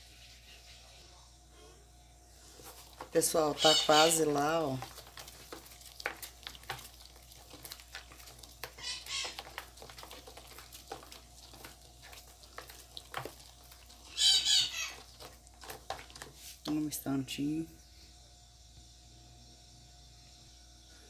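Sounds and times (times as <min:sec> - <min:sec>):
spoon stirring thick paste: 0:02.3 - 0:17.2.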